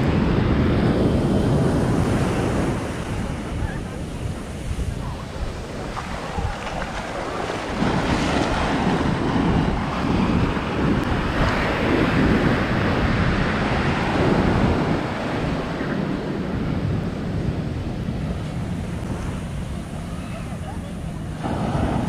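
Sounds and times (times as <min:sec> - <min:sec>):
surf washing onto beach: 0:00.0 - 0:22.0
wind buffeting microphone: 0:00.0 - 0:22.0.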